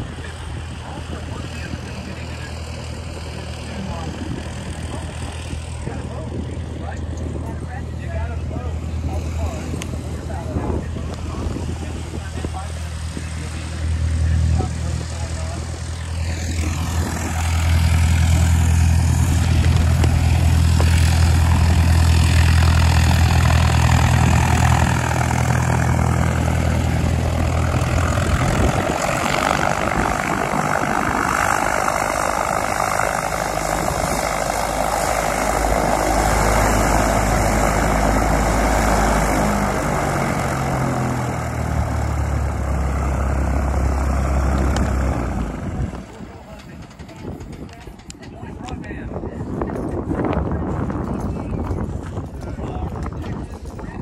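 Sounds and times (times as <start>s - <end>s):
propeller airplane engine humming: 0.0s - 54.0s
broad rushing sound: 8.1s - 46.2s.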